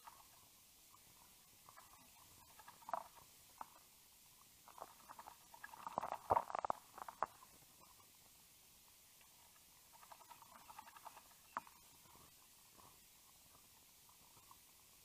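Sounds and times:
bird splashing water: 9.9s - 11.8s.

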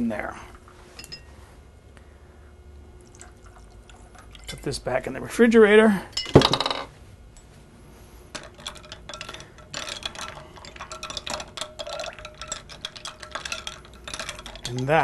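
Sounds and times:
spoon clinking in glass with ice: 8.4s - 15.0s.

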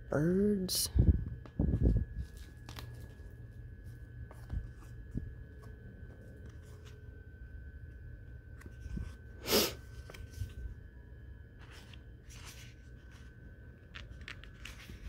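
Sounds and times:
stiff pages turning: 1.4s - 7.1s, 8.5s - 10.8s, 11.6s - 15.0s.

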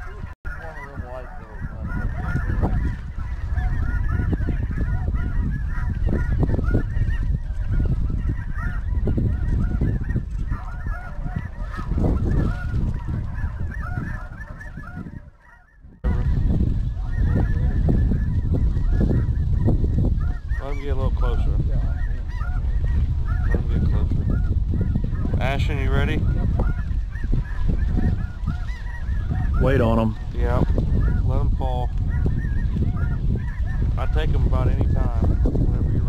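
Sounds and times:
flock of geese honking: 0.0s - 36.0s
wind rumbling on microphone: 0.0s - 36.0s.

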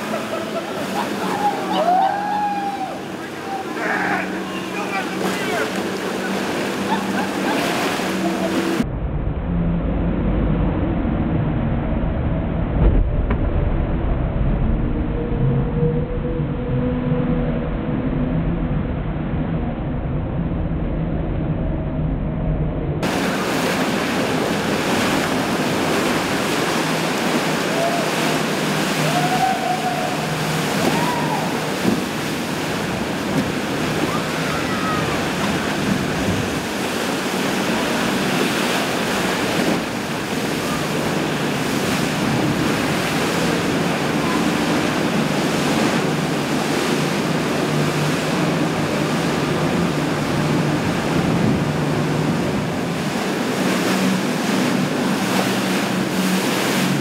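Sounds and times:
rushing whitewater: 0.0s - 8.8s, 23.0s - 57.0s
outboard engine rumble: 0.0s - 57.0s.

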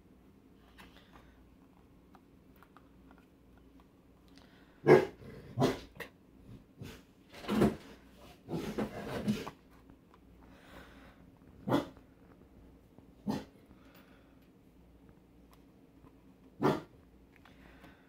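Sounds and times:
dog barking: 4.8s - 5.9s, 11.6s - 12.0s, 13.2s - 13.5s, 16.6s - 16.9s.

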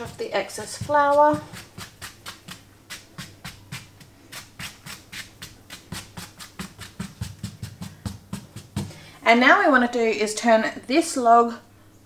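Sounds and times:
hand brushing flour off dough: 0.0s - 9.0s.

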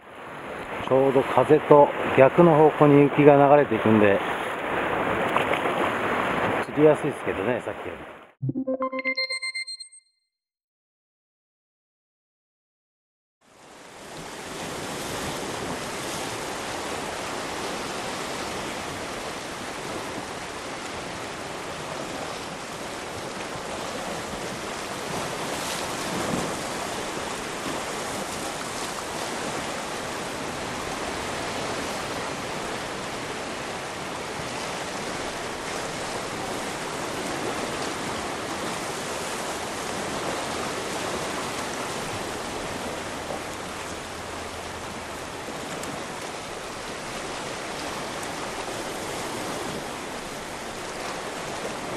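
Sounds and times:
surf washing on rocky shore: 13.7s - 51.9s.

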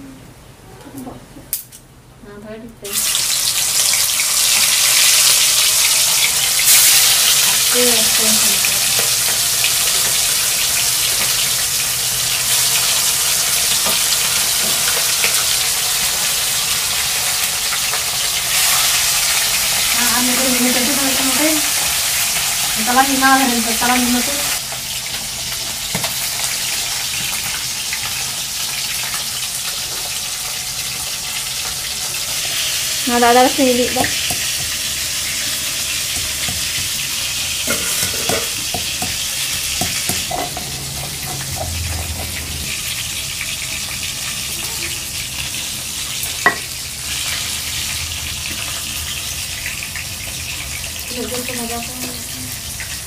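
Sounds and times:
fish deep-frying in hot oil: 2.8s - 53.0s.

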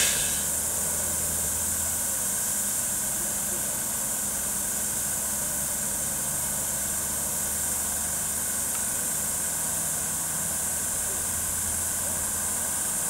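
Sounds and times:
high hiss: 0.0s - 0.8s
train equipment low hum: 0.0s - 0.8s.

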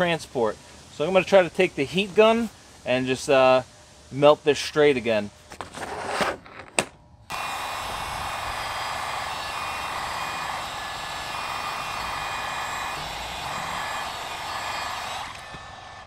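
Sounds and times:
heat gun blowing air: 7.3s - 16.0s.

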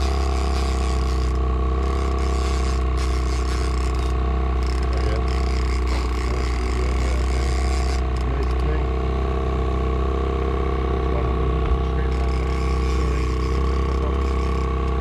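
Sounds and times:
fishing reel ratcheting: 0.0s - 8.6s, 12.1s - 15.0s
boat motor humming: 0.0s - 15.0s.

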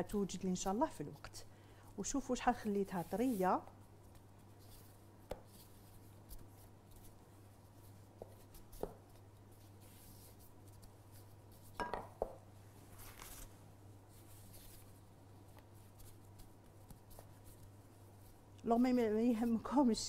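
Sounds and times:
low steady hum: 0.0s - 20.0s
rolling pin rubbing dough: 2.5s - 11.8s.

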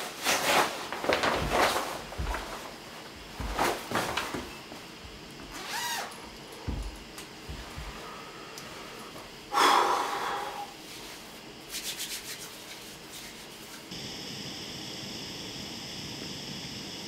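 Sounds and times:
gas stove burner hissing: 0.0s - 17.0s
hands rubbing together: 10.9s - 13.9s.

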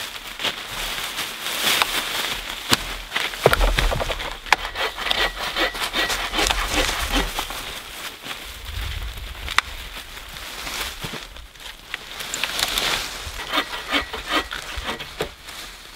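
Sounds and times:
footsteps crunching dry leaves: 0.0s - 15.9s
dry wood cracking: 1.6s - 8.0s, 11.0s - 15.6s
hand saw cutting wood: 3.4s - 7.7s, 12.8s - 15.4s.

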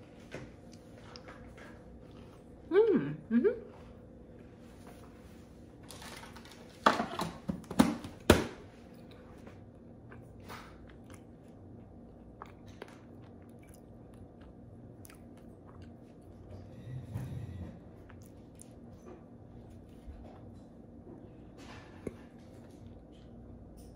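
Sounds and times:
person chewing: 8.9s - 16.6s, 18.0s - 19.0s.

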